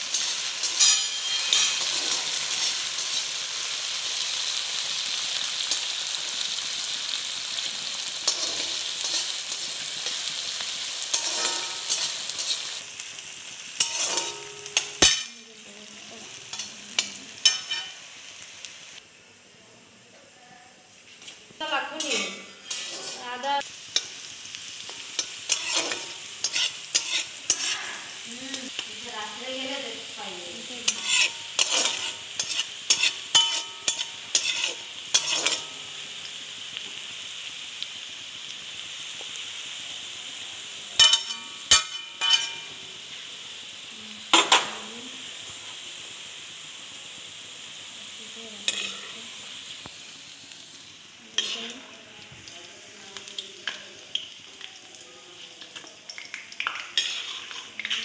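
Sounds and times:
spatula scraping a pan: 0.0 - 3.7, 8.2 - 10.4, 11.0 - 12.8, 13.8 - 15.3, 22.0 - 24.1, 24.9 - 28.2, 30.8 - 36.0, 41.0 - 42.7, 48.6 - 49.3, 51.4 - 51.8, 56.9 - 58.0
onions sizzling in oil: 0.0 - 58.0.

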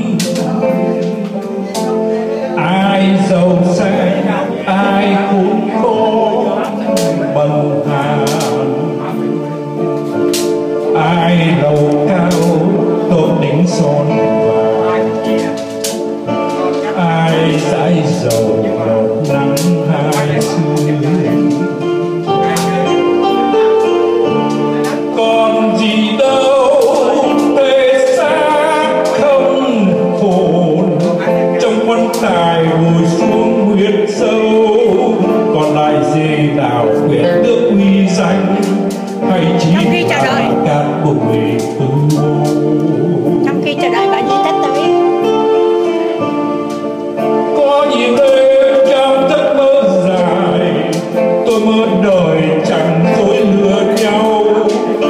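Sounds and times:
electronic keyboard: 0.0 - 55.0
man singing into microphone: 0.0 - 55.0.

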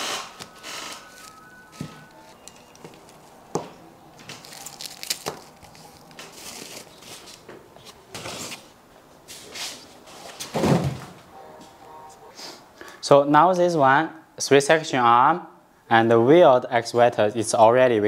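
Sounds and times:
plastic and paper rustling: 0.4 - 11.0.

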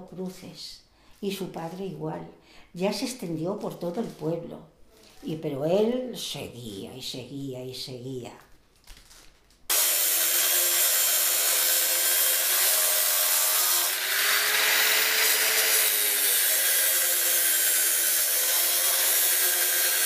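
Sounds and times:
angle grinder cutting metal: 9.7 - 20.0.

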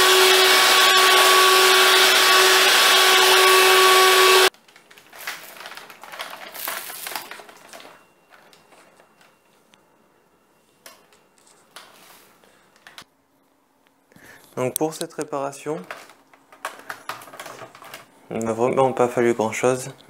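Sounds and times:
vacuum cleaner motor whine: 0.0 - 4.5
plastic handling rustles: 4.5 - 9.7, 14.5 - 18.2.

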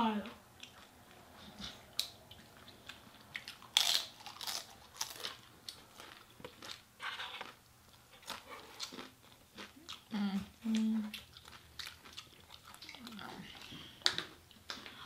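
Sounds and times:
wet chewing: 0.6 - 15.0
crunching fried chicken: 2.0 - 7.6, 11.2 - 13.2.

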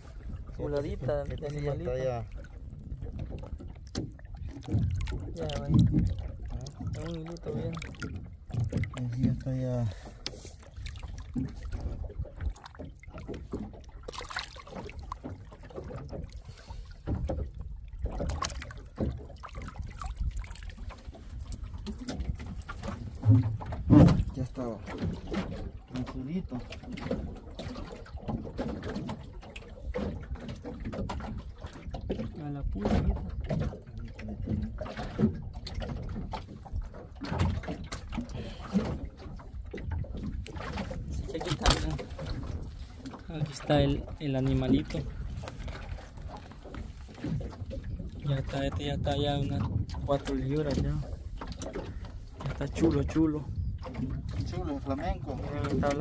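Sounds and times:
fishing line clattering in boat: 0.0 - 56.0
water splashing and dripping: 0.0 - 56.0.

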